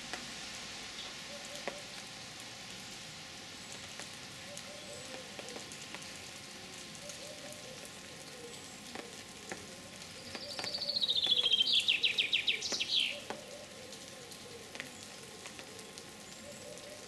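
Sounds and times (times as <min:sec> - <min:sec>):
songbird singing: 0:10.1 - 0:15.2.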